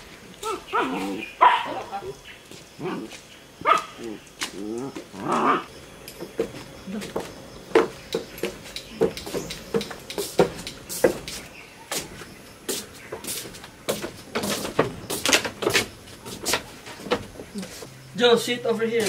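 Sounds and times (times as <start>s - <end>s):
footsteps on wooden stairs and floor: 6.2s - 17.9s.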